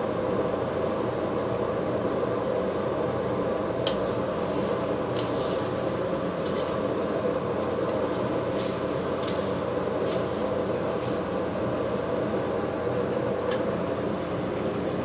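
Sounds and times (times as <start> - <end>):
gas burner rushing: 3.9 - 14.4.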